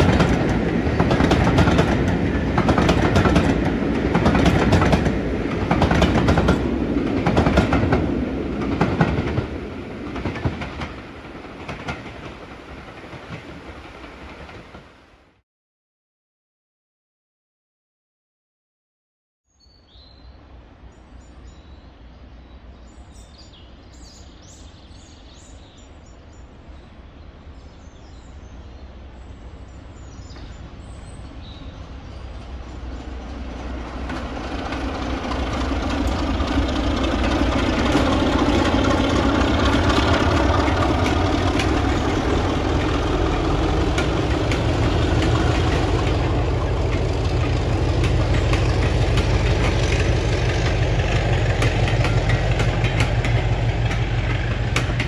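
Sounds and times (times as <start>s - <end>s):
diesel locomotive passing: 0.0s - 15.2s, 28.2s - 55.0s.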